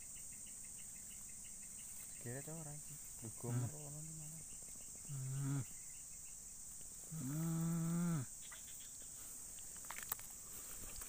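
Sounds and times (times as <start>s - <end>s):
insect chorus: 0.0s - 11.0s
low drawn-out calls: 2.4s - 5.8s.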